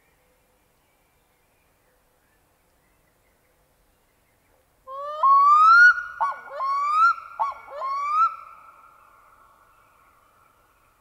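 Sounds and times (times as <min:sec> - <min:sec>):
loon calling: 0:04.9 - 0:08.7.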